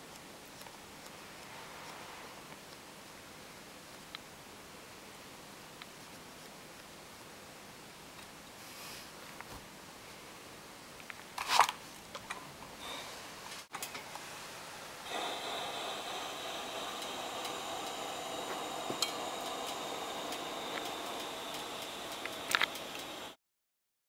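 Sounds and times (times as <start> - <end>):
fabric and plastic being handled: 11.3 - 12.0
steam iron hissing: 14.2 - 23.4.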